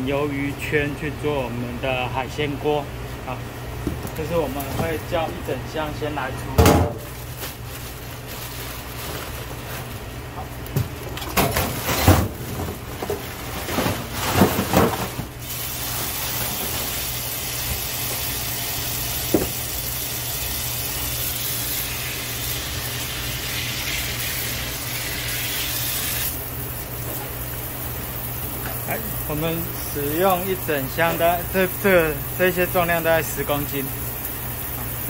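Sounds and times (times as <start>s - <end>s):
frozen pieces clattering in a steel sink: 11.3s - 17.2s
tap water running: 15.5s - 26.2s.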